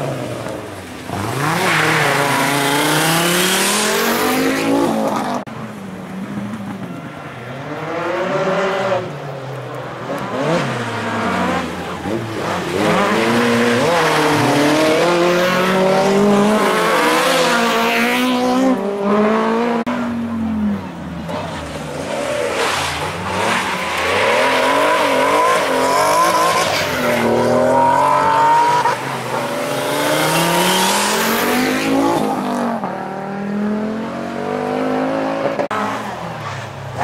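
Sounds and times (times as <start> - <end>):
rally car engine revving: 0.0 - 5.5, 10.0 - 37.0.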